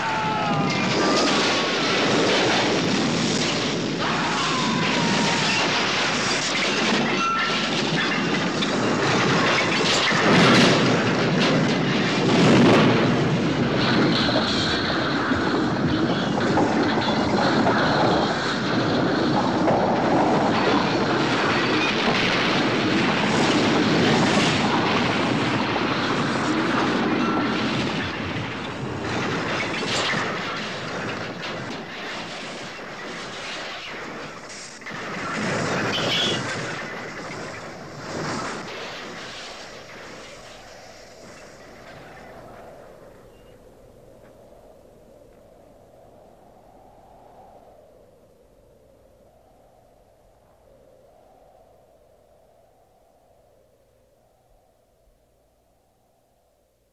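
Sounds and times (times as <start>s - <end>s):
railroad cars crashing down hillside: 0.0s - 43.5s.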